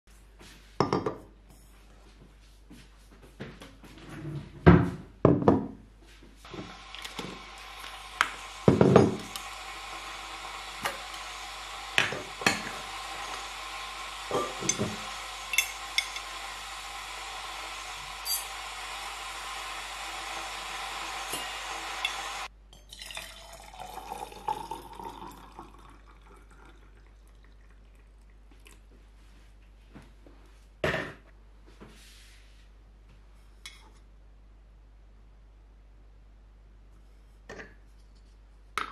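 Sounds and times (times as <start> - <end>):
metal lid and spoon clanks: 14.3 - 16.2, 18.2 - 18.5
spoon clink: 15.5 - 16.3, 18.2 - 18.5
liquid pouring into tumbler: 21.0 - 28.9.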